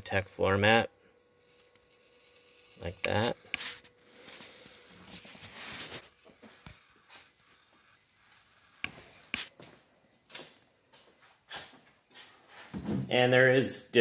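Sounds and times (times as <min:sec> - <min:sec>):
rustling and scuffing: 0:09.3 - 0:13.1.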